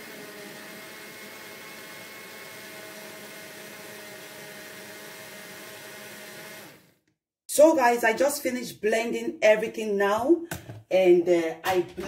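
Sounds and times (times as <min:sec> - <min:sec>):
electric blender motor whirring: 0:00.0 - 0:07.1.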